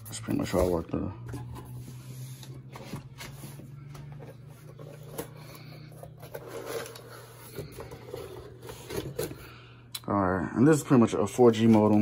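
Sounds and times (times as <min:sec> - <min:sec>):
cardboard flaps rustling and scraping: 0:00.0 - 0:09.5
low steady hum: 0:00.0 - 0:12.0.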